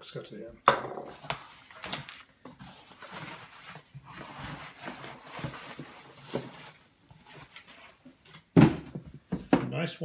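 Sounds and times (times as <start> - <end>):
cardboard box rustling and scraping: 1.4 - 8.0.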